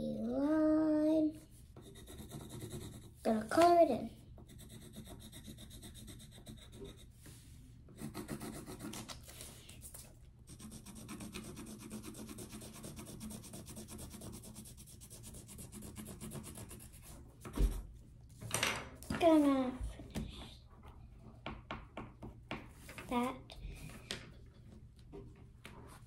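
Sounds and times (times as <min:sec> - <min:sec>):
pencil rubbing on paper: 0:01.3 - 0:03.5, 0:04.4 - 0:17.9.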